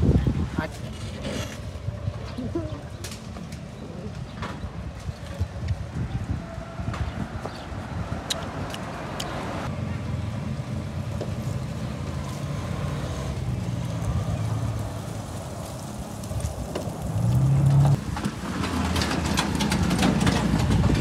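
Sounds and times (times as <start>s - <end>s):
vehicle engine hum: 7.4s - 21.0s.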